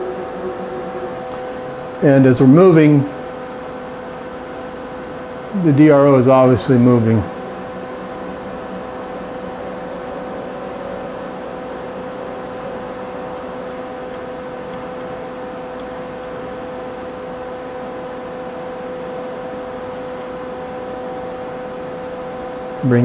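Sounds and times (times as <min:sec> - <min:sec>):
servo drive whine: 0:00.0 - 0:04.8
machine hum: 0:00.0 - 0:23.0.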